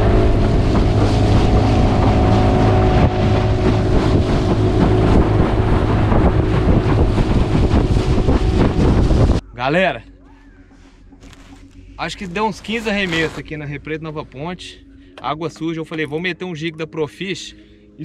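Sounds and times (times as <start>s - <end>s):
water rushing past hull: 0.0s - 9.4s
outboard motor running: 0.0s - 9.5s
wind buffeting microphone: 0.0s - 9.5s.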